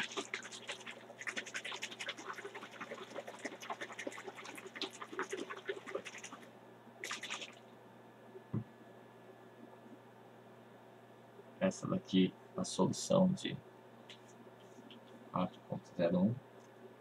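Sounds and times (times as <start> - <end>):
plastic bottle of liquid shaken: 0.0 - 6.4.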